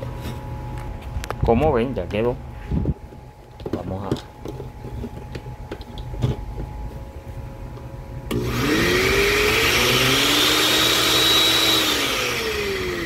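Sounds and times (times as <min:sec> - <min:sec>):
blender motor whining: 0:08.3 - 0:13.0.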